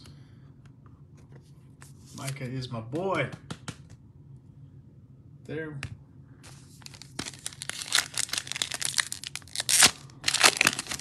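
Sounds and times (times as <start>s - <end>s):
foil wrapper crinkling and tearing: 6.8s - 11.0s.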